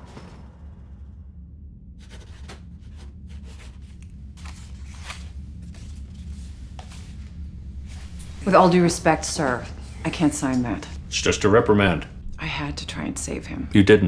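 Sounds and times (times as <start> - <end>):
steady low hum: 0.0 - 14.0
paper rustling: 2.0 - 7.2.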